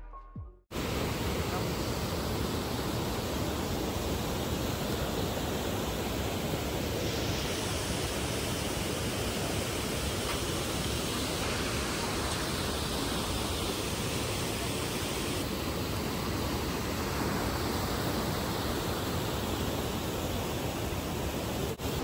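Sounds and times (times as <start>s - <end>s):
whitewater rushing over rocks: 0.8s - 22.0s.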